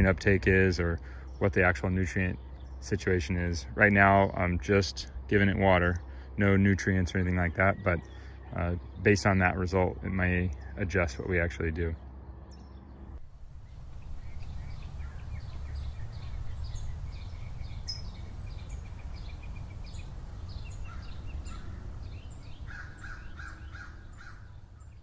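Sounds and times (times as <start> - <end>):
lower repeated bird call notes: 0.0 - 25.0
songbirds chirping: 0.0 - 25.0
steady low rumble: 13.0 - 25.0.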